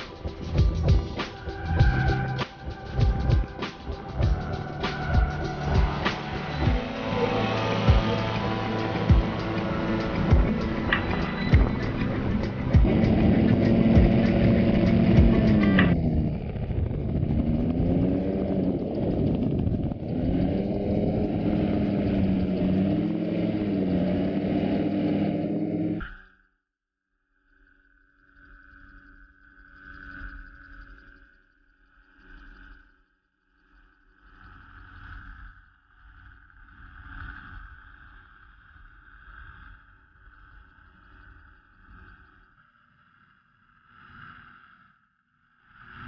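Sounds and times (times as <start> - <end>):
wind noise: 0.0 - 23.1
gyrocopter engine and propeller: 0.0 - 26.0.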